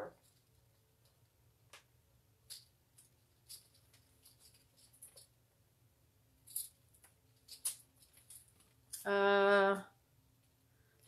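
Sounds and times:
small objects clicking and rustling: 0.0 - 5.3, 6.4 - 9.7
low room hum: 0.0 - 11.0.

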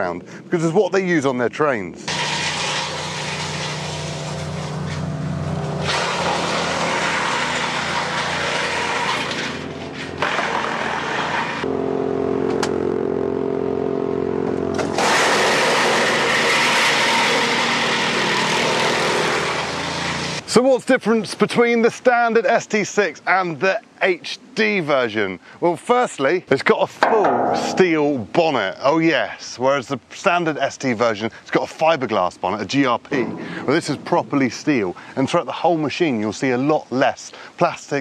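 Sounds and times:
petrol engine running: 9.3 - 20.4.

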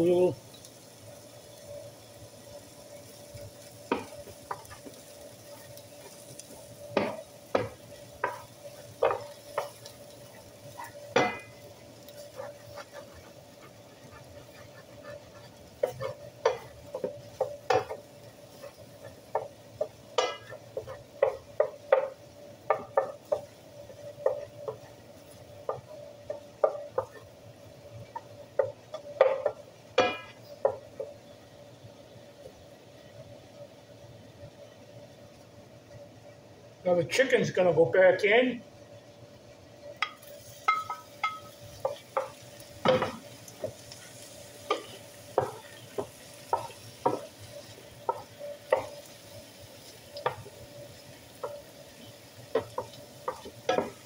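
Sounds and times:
eggs sizzling: 0.0 - 54.0
wooden spoon scraping a skillet: 2.9 - 27.4, 40.0 - 54.0.

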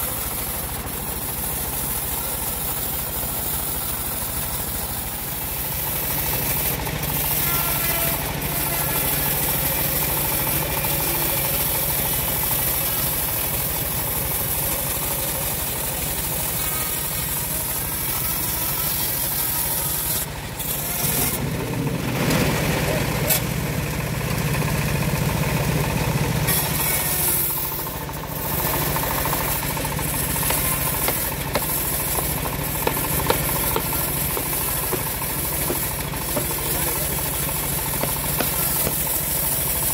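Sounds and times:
bandsaw mill sawing log: 0.0 - 39.9
hammer knocking on log: 30.4 - 36.6, 38.0 - 39.0.

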